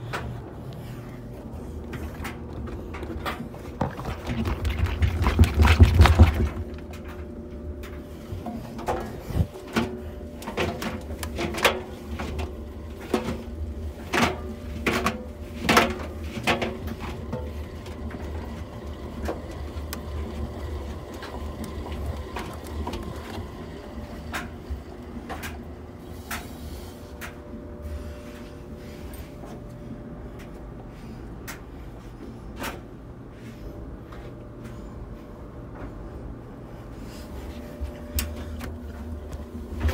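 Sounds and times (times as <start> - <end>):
washing machine drum rumbling: 0.0 - 30.5.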